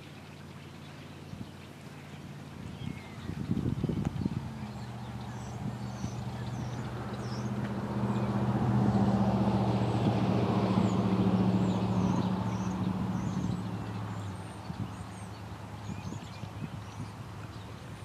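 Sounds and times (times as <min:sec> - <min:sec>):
small birds chirping: 0:00.0 - 0:18.0
vehicle engine passing: 0:02.3 - 0:18.0.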